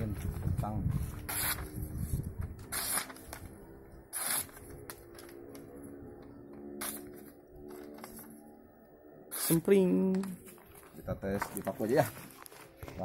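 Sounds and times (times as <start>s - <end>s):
sword swishing through paper: 1.0s - 1.8s, 2.6s - 3.5s, 4.1s - 4.8s.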